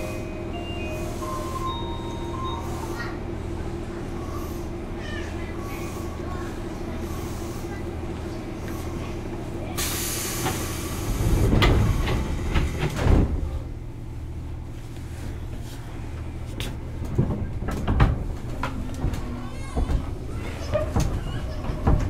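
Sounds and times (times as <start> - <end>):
train equipment hum: 0.0 - 22.0
sliding doors rumble and thuds: 8.2 - 14.7, 15.5 - 22.0
air hiss: 9.8 - 11.2.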